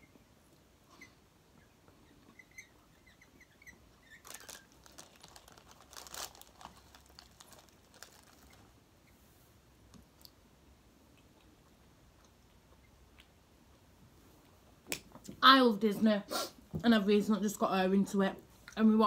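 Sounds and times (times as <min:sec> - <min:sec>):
paper bag crinkling: 0:04.1 - 0:08.8.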